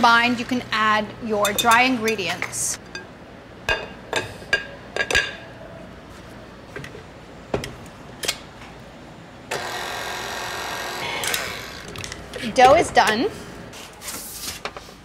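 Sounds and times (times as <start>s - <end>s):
glass bowls clinking: 1.4s - 3.1s.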